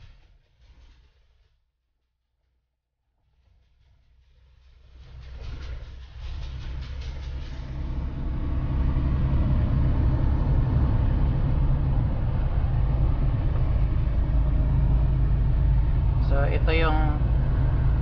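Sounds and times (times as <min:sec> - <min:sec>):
truck engine and tyres droning: 0:04.3 - 0:18.0.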